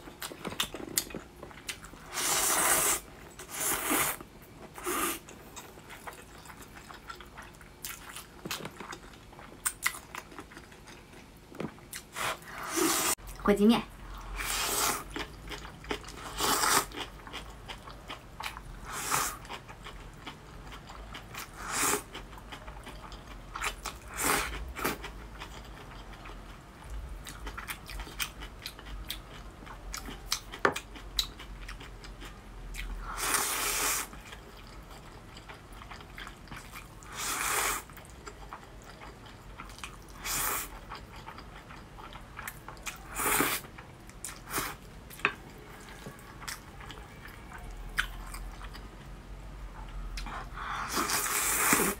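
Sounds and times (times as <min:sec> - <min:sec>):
soft chewing: 0:00.0 - 0:13.4, 0:14.0 - 0:33.3, 0:34.0 - 0:52.0
person slurping noodles: 0:02.1 - 0:04.2, 0:04.8 - 0:05.2, 0:12.2 - 0:13.2, 0:50.6 - 0:52.0.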